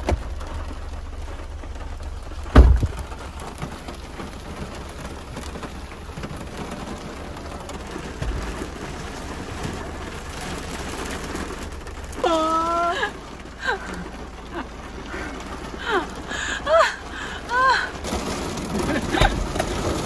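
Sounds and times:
heavy rain drumming on car roof: 0.0 - 20.0
loud thump: 2.5 - 3.1.

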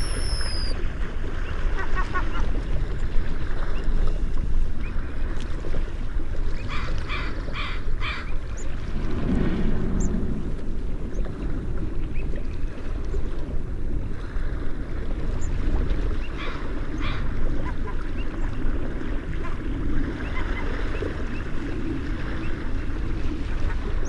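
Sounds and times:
short bird calls: 0.0 - 0.7
wind rumble on microphone: 0.0 - 24.0.

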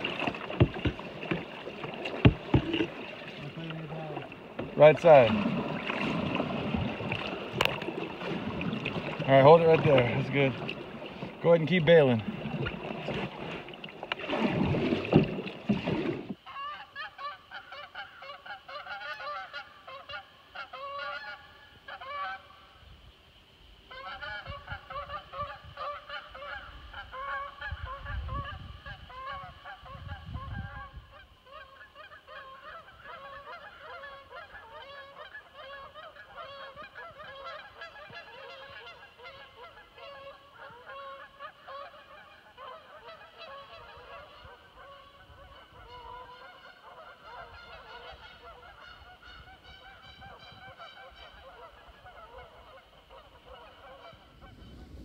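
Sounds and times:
geese honking: 16.4 - 22.5, 23.9 - 55.0.

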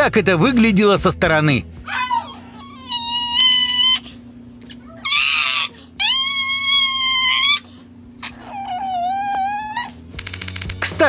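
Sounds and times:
dog screaming high-pitched cries: 1.8 - 10.0.

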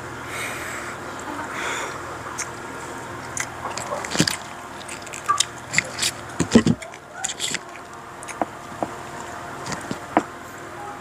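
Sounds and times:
man chewing food: 2.0 - 10.4
crab shell cracking: 3.2 - 10.3.

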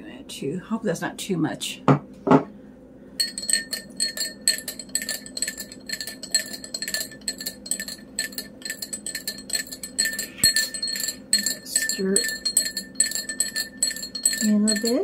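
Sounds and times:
teaspoon clinking in glass: 3.2 - 15.0.

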